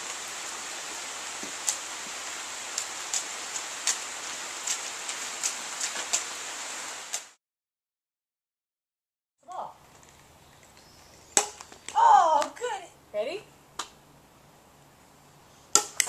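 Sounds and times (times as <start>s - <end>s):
rain on stone patio: 0.0s - 7.4s, 9.5s - 13.4s.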